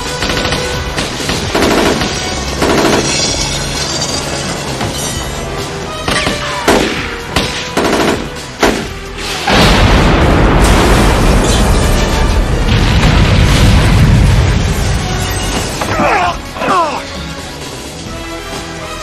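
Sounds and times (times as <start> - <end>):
gunshots: 0.0 - 3.4, 6.0 - 14.8
action film music score: 0.0 - 19.0
loud explosion with rumble: 9.5 - 15.8.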